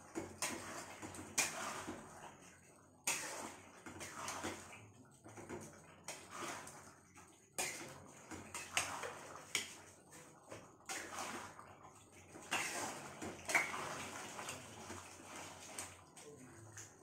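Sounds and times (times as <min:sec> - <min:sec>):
metal spatula scraping a pot: 0:00.4 - 0:02.4, 0:03.0 - 0:04.7, 0:06.1 - 0:06.9, 0:12.4 - 0:13.9.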